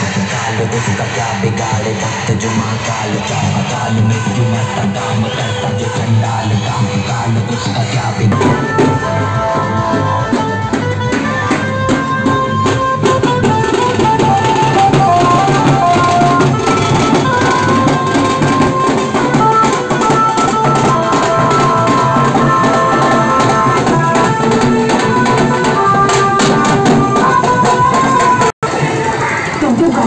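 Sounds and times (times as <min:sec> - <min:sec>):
drums beating fast: 0:00.0 - 0:30.0
held-note melody: 0:08.3 - 0:28.5.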